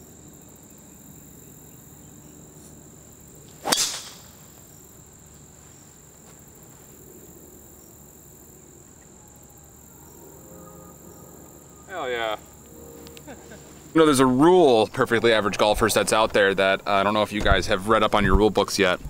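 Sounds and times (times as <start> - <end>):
golf club striking ball: 3.6 - 4.4.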